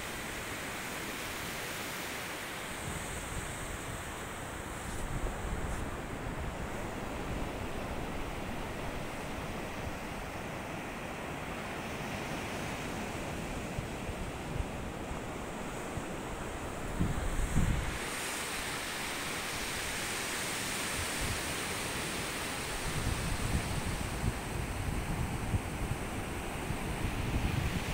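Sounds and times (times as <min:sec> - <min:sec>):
wind buffeting microphone: 0:16.0 - 0:18.1, 0:22.8 - 0:27.9.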